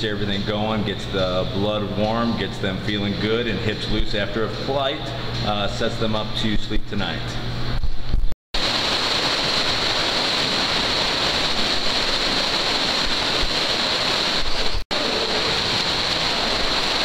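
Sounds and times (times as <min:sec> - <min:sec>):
pool water splashing: 0:08.6 - 0:17.0.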